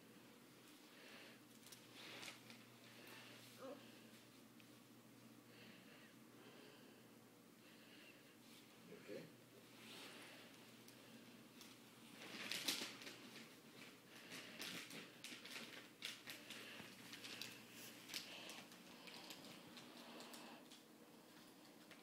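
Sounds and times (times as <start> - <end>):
wrapping paper crinkling: 11.6 - 22.0.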